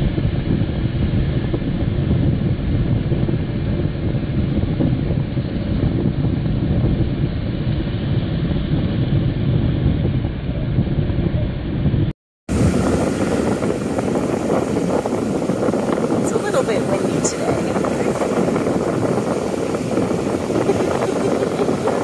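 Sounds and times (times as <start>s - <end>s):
wind rumbling on microphone: 0.0s - 22.0s
surf breaking: 12.5s - 22.0s.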